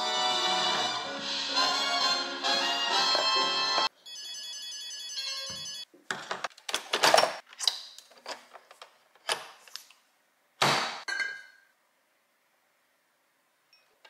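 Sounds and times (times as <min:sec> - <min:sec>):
background music: 0:00.0 - 0:03.9.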